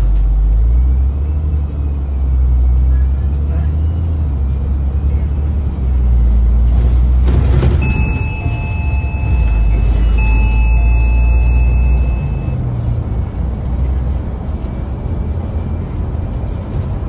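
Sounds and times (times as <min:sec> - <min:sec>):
bus engine drone: 0:00.0 - 0:17.0
high steady tone: 0:07.8 - 0:12.6.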